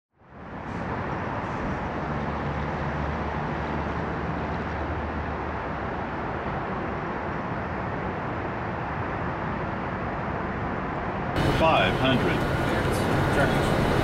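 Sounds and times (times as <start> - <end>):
jet engines roaring: 11.3 - 14.0.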